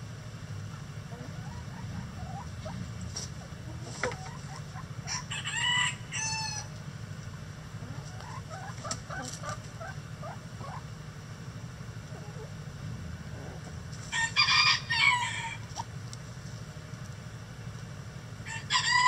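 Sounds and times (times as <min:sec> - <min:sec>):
low steady hum: 0:00.0 - 0:19.0
hens clucking softly: 0:00.6 - 0:11.0, 0:12.0 - 0:16.0
rooster crowing: 0:05.0 - 0:06.7, 0:14.1 - 0:15.6, 0:18.4 - 0:19.0.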